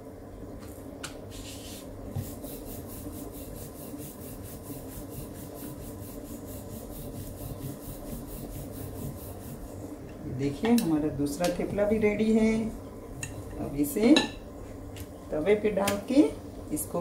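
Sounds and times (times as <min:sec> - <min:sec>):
rolling pin rubbing on dough: 0:01.4 - 0:09.9.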